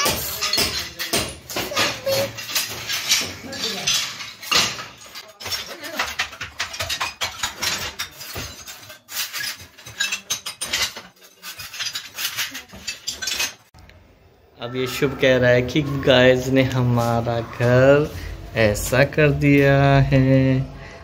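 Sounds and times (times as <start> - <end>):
tile shards clinking: 0.0 - 13.7.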